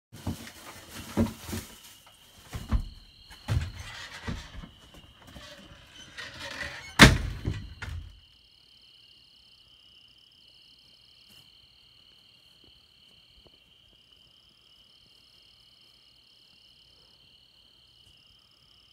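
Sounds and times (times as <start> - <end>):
knocks and handling noise: 0.2 - 8.1
glass storm door thunk: 5.4 - 8.2.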